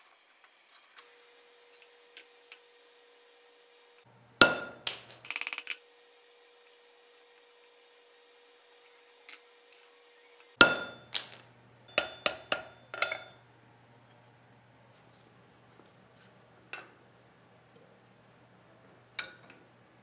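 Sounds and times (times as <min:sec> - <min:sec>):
hammer striking metal on anvil: 0:04.4 - 0:05.7, 0:10.6 - 0:13.4.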